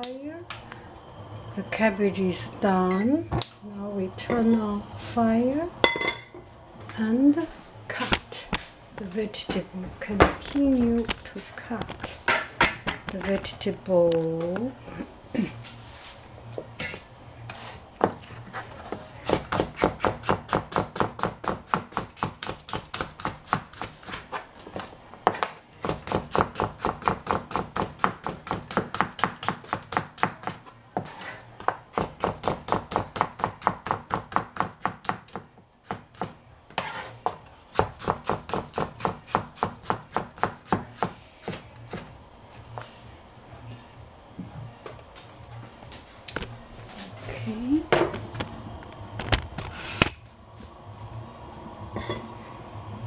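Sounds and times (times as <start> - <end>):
knife chopping on cutting board: 31.6 - 42.1.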